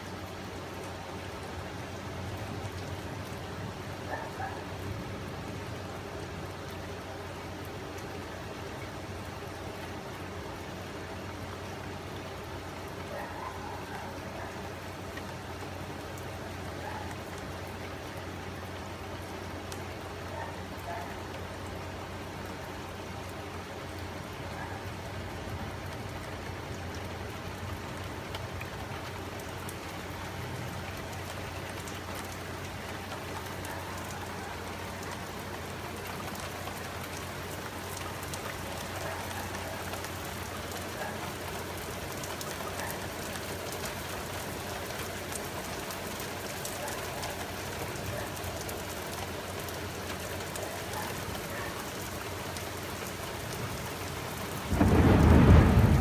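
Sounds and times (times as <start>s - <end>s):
steady rain: 0.0s - 56.0s
loud thunder clap: 54.7s - 56.0s.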